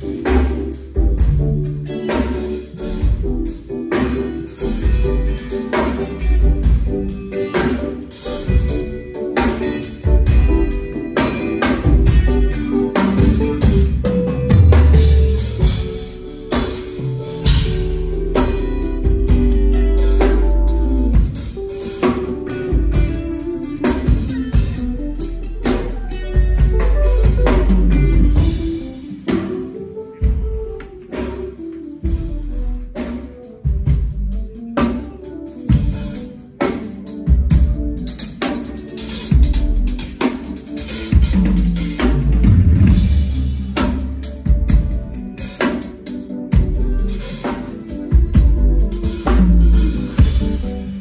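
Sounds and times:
drum kit with bass pulse: 0:00.0 - 0:51.0
electric guitar: 0:00.0 - 0:51.0
deep bass line: 0:11.8 - 0:29.5, 0:48.1 - 0:51.0.

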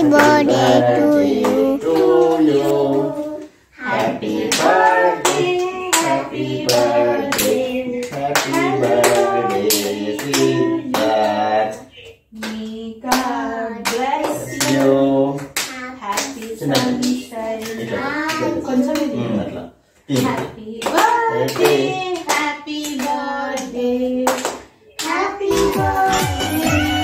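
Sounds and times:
hands clapping to the beat: 0:00.0 - 0:03.0, 0:03.9 - 0:19.1, 0:20.1 - 0:27.0
voices singing together: 0:00.0 - 0:27.0.

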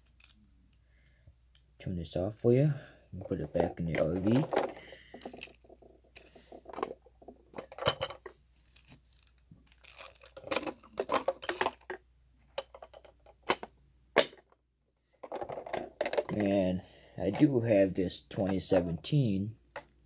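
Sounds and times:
plastic toy clicks and rattles: 0:09.2 - 0:12.0.

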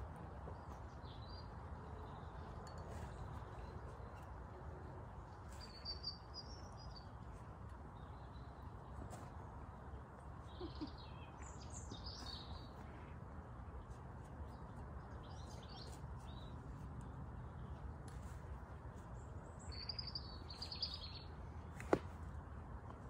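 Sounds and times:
birds chirping: 0:19.0 - 0:22.0.

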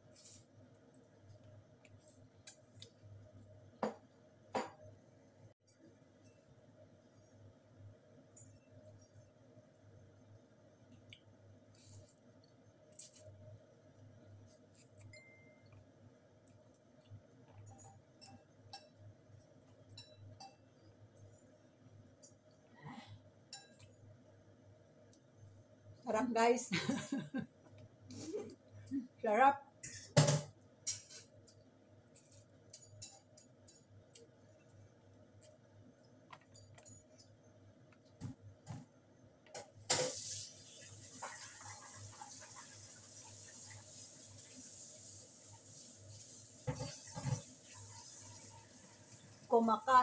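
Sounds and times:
steady hiss: 0:39.9 - 0:47.0.

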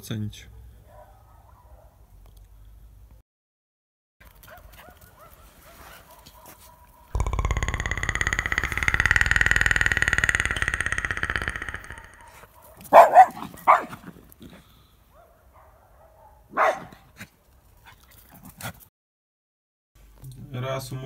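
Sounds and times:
dog barking: 0:00.8 - 0:02.0, 0:04.5 - 0:07.1, 0:12.2 - 0:14.0, 0:15.1 - 0:17.1
high fast-pulsing sound: 0:07.2 - 0:12.3.

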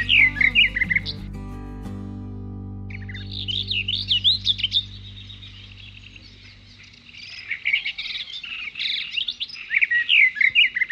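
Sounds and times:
small birds chirping: 0:00.0 - 0:01.4, 0:02.9 - 0:10.9
held music chord: 0:00.0 - 0:07.2.

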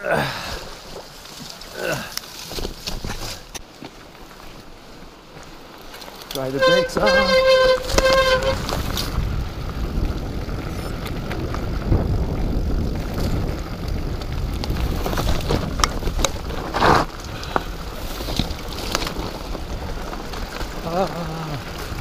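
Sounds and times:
bike tyres on dirt: 0:00.0 - 0:22.0
bike rattling and knocking: 0:00.8 - 0:04.5, 0:05.3 - 0:22.0
loud scrape: 0:06.6 - 0:09.0, 0:16.6 - 0:17.1
wind rushing over microphone: 0:06.7 - 0:22.0.

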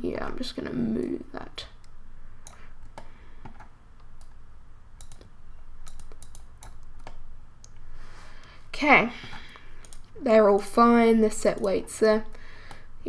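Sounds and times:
mouse and keyboard clicks: 0:05.0 - 0:07.2.

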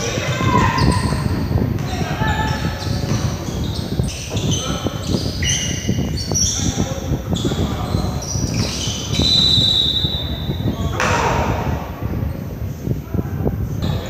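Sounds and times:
echoing voices: 0:00.0 - 0:14.0
sneakers squeaking: 0:00.0 - 0:14.0
basketball bouncing: 0:00.1 - 0:04.6.

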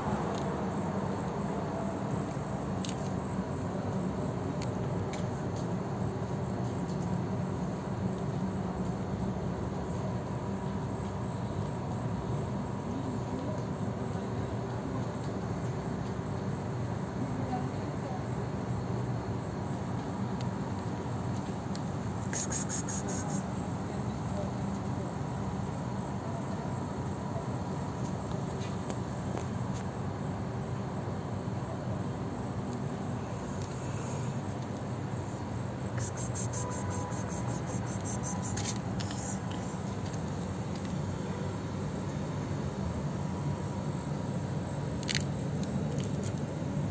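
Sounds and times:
faint steady hum: 0:00.0 - 0:46.9
high insect-like chirps: 0:20.2 - 0:29.9, 0:32.2 - 0:46.9.

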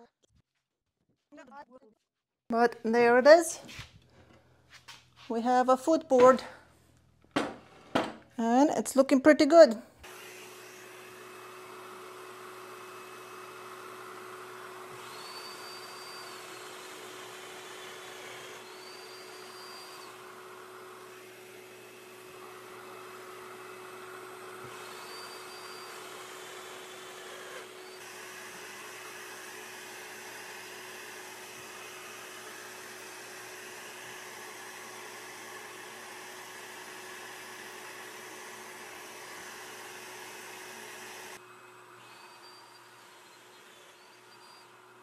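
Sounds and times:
shop vacuum running: 0:10.0 - 0:45.0.

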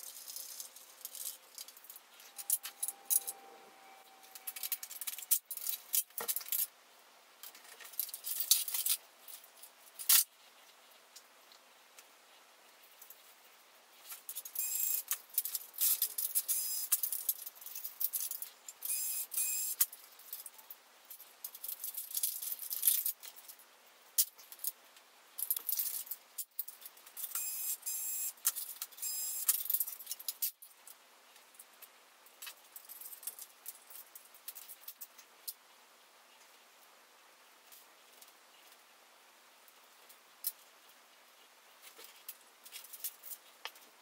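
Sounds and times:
plastic and metal parts clattering: 0:04.2 - 0:06.7, 0:07.4 - 0:10.3, 0:21.2 - 0:23.6.

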